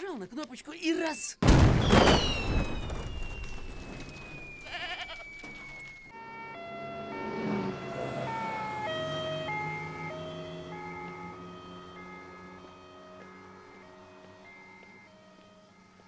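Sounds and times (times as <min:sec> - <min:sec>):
explosion rumble: 0:01.4 - 0:04.6
high ringing tone: 0:02.2 - 0:15.8
two-tone emergency sirens: 0:02.4 - 0:16.0
motorcycle engines passing: 0:06.2 - 0:16.0.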